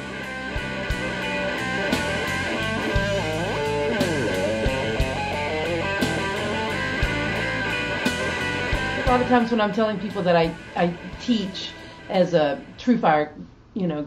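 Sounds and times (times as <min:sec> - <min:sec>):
blues-rock band playing: 0:00.0 - 0:10.8
lead electric guitar bending notes: 0:00.0 - 0:12.4.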